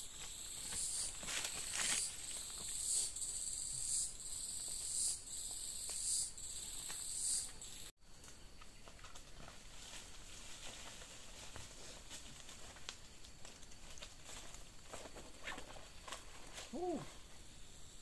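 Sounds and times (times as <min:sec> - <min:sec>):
insects shrilling: 0:00.0 - 0:07.9.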